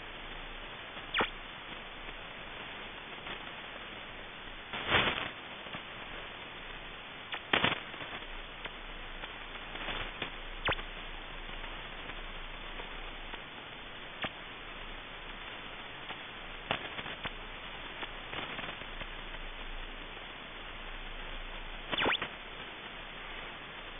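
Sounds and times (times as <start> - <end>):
radio static hiss: 0.0 - 23.9
sharp clicks and crackles: 21.9 - 22.3.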